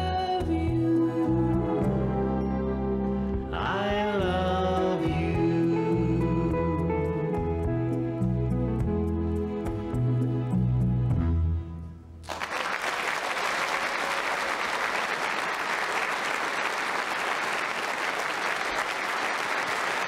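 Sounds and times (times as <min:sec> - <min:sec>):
audience applauding: 0:12.2 - 0:20.0.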